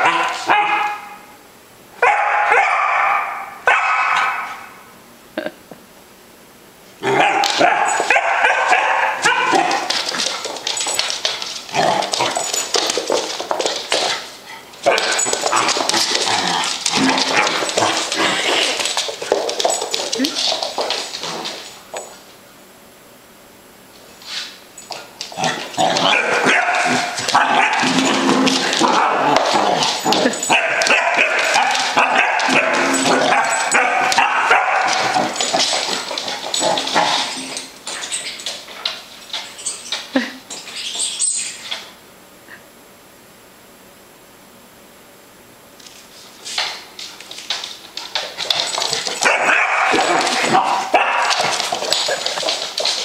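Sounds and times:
puppy barking and yipping: 0:02.0 - 0:04.6, 0:07.2 - 0:09.9, 0:26.1 - 0:28.0, 0:30.5 - 0:35.4, 0:49.2 - 0:52.1.

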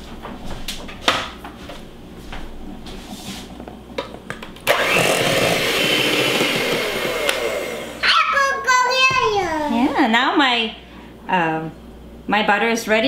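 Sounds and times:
electric hand mixer whirring: 0:04.6 - 0:08.5.

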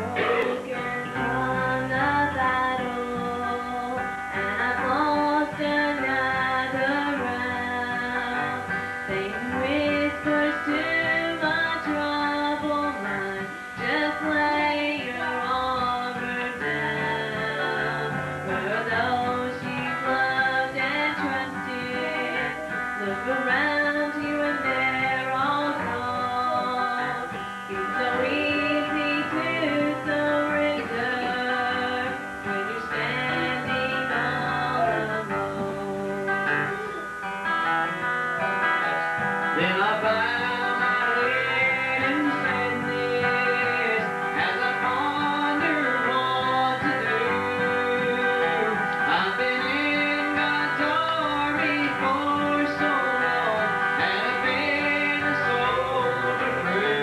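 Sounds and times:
acoustic guitar strumming: 0:00.0 - 0:57.0.

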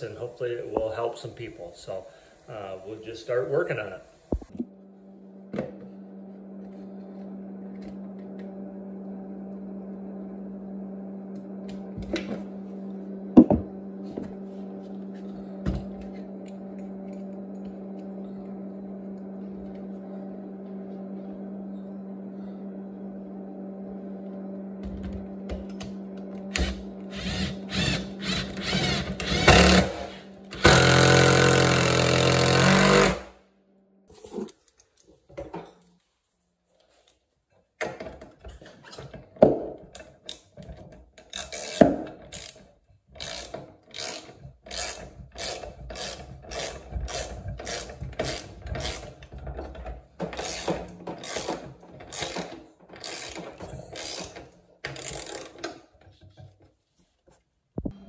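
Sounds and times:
cordless drill driving screws: 0:26.5 - 0:30.0, 0:30.6 - 0:33.2, 0:50.4 - 0:54.4.

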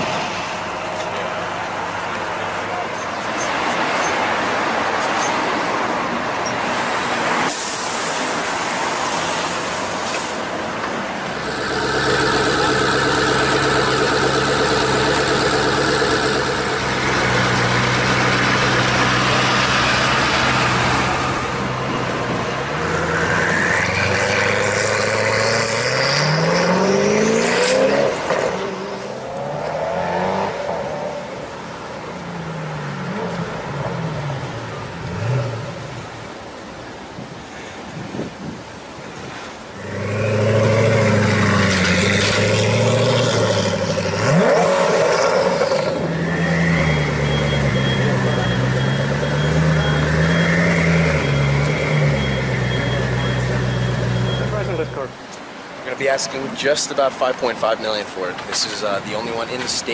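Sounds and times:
road traffic: 0:00.0 - 0:59.9
sports car engine revving: 0:11.2 - 0:19.9, 0:39.8 - 0:55.0.

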